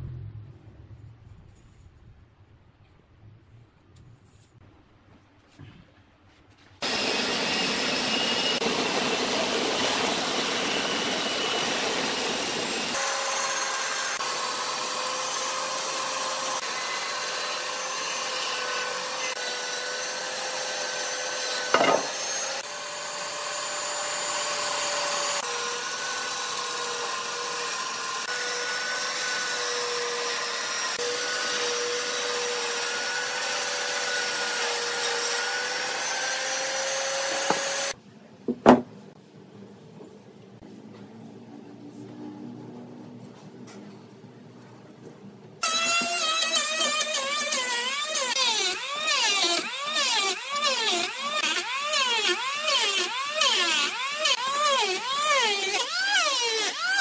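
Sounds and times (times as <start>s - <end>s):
band saw cutting wood: 6.8s - 38.0s, 45.6s - 57.0s.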